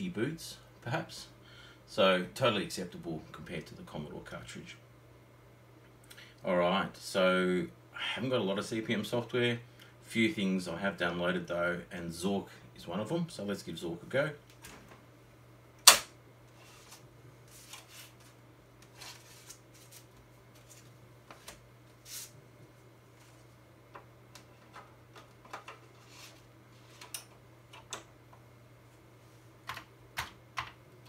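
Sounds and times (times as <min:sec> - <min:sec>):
low steady hum: 0:00.0 - 0:31.0
floppy disks rustling and sliding: 0:16.5 - 0:23.6, 0:24.4 - 0:27.2.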